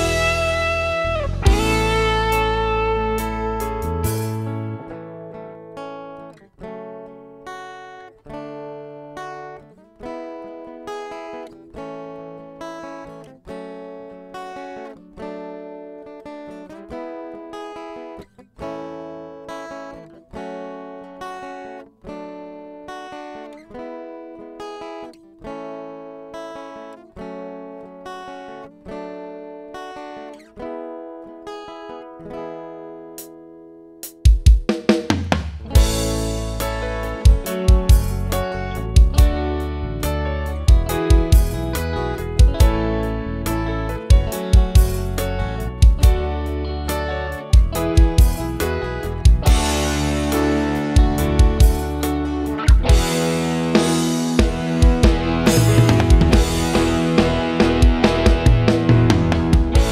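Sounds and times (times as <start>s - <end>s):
acoustic guitar strumming: 0.0s - 59.9s
drum hit: 1.5s - 2.1s, 34.3s - 38.4s, 49.2s - 59.9s.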